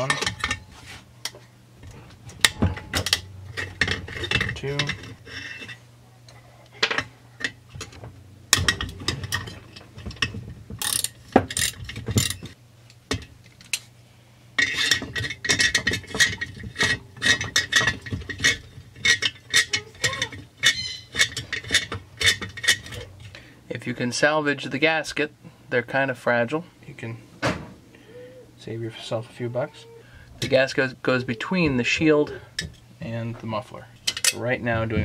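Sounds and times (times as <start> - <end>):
metal tools clinking: 0.0 - 0.8, 2.3 - 5.8, 8.6 - 12.6, 14.6 - 23.2, 34.0 - 34.6.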